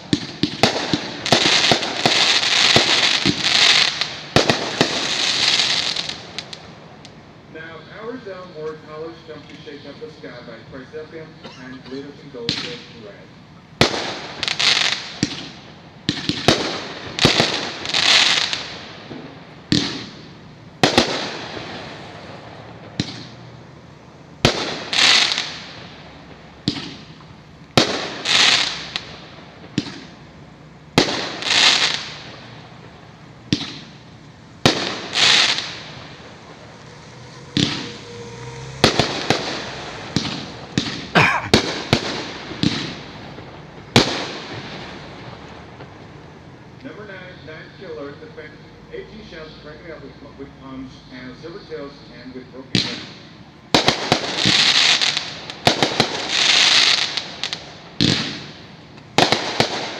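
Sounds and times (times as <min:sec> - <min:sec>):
fireworks bangs: 0:00.0 - 0:48.1, 0:52.7 - 0:59.9
hissing crackling spray: 0:27.5 - 0:46.2.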